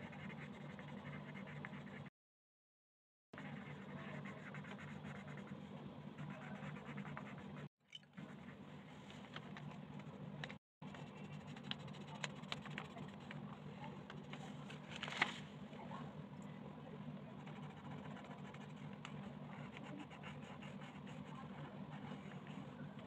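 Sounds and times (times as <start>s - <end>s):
colored pencil scratching on paper: 0.0s - 2.1s, 3.4s - 8.6s, 10.8s - 13.4s, 17.4s - 22.8s.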